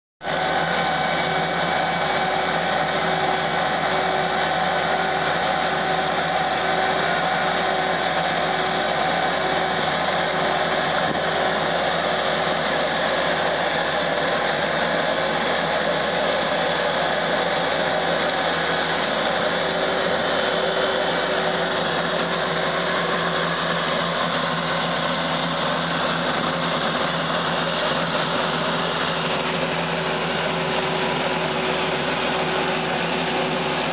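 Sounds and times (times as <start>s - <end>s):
engine droning: 0.2s - 33.9s.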